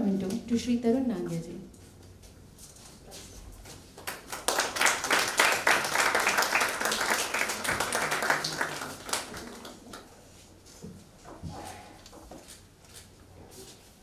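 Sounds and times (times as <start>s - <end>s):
audience applauding: 4.0s - 10.1s.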